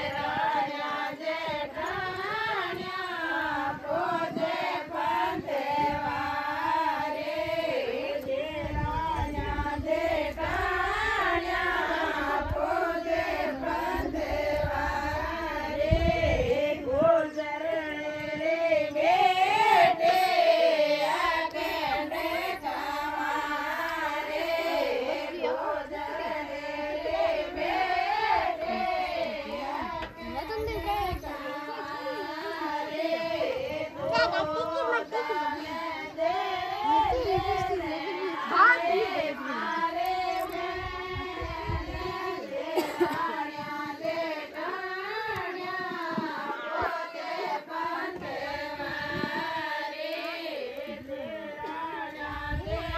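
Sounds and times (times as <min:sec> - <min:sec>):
women singing folk song: 0:00.0 - 0:52.9.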